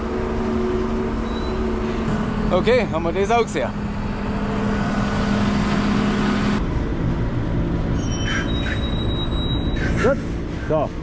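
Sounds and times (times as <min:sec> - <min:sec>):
steady hum: 0:00.0 - 0:08.0
tractor diesel engine running: 0:00.0 - 0:11.0.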